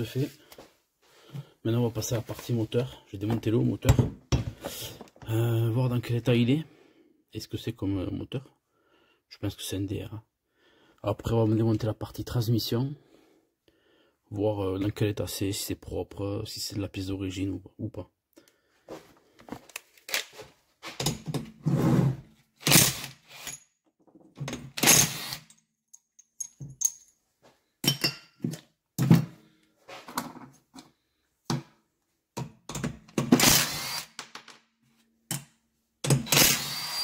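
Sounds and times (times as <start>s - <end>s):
metallic clanks and rattles of tools: 25.5s - 27.2s, 27.8s - 29.3s.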